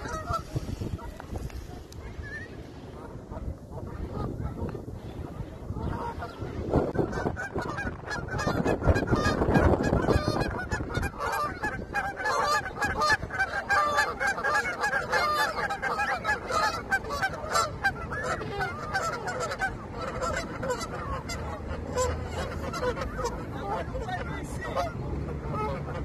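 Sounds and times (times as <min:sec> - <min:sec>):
geese honking: 0:00.0 - 0:26.0.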